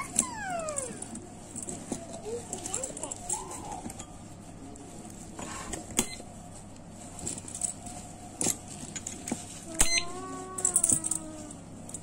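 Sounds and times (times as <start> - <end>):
keys rattling: 7.1 - 9.4, 10.6 - 12.0.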